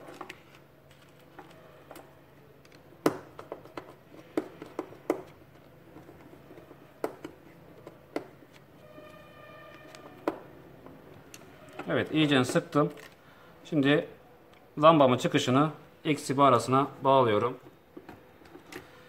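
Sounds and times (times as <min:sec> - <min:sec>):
wires clicking and knocking: 0:00.0 - 0:13.2.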